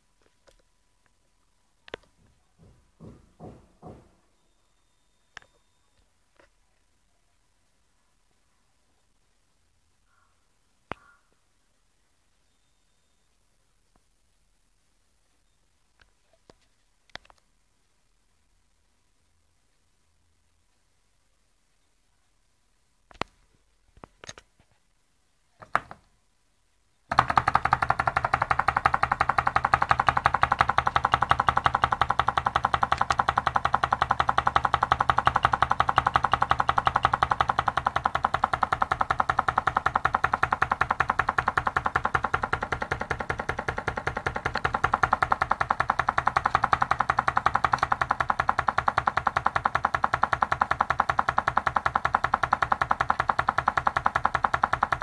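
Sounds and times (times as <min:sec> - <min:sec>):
engine mechanical clatter: 0:27.1 - 0:55.0.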